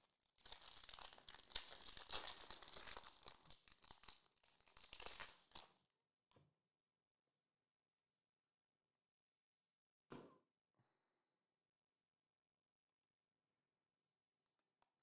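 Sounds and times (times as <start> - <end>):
foil wrapper tearing and crinkling: 0.4 - 5.7.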